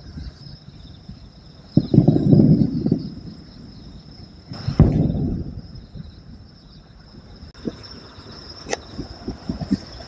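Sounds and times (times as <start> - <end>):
insects trilling: 0.0 - 10.0
firework shell bursting boom: 1.8 - 6.4.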